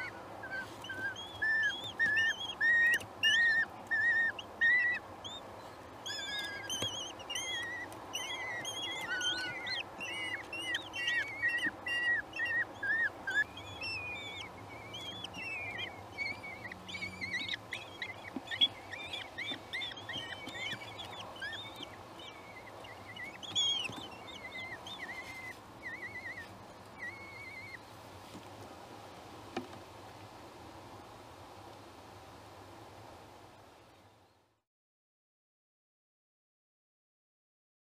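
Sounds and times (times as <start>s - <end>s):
bird chicks chirping: 0.0s - 28.5s.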